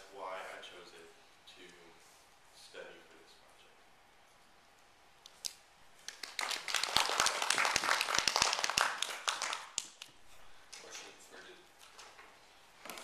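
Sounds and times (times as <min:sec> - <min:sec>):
small audience applauding: 0:06.0 - 0:11.0.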